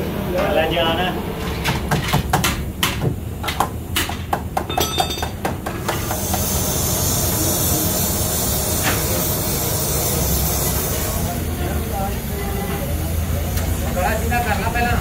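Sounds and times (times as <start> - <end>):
metal knocks and taps: 1.6 - 6.0.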